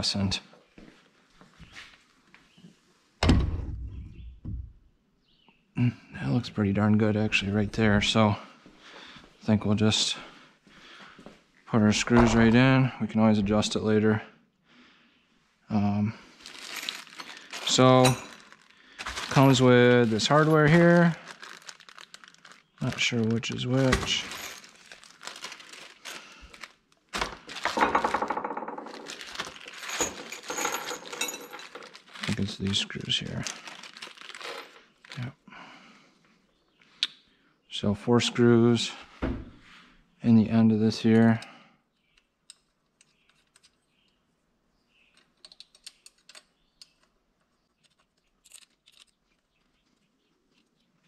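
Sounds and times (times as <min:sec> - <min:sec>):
plastic bags crinkling: 0:16.3 - 0:35.3
metal screws clinking: 0:16.6 - 0:18.7, 0:27.6 - 0:32.3, 0:47.8 - 0:49.2.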